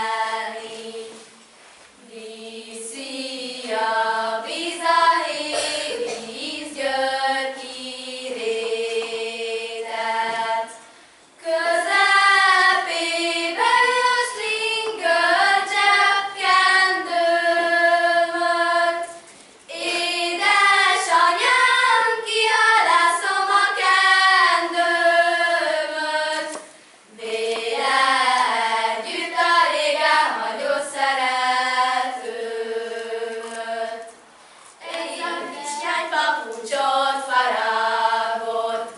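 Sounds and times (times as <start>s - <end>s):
girls singing unaccompanied: 0.0s - 38.9s.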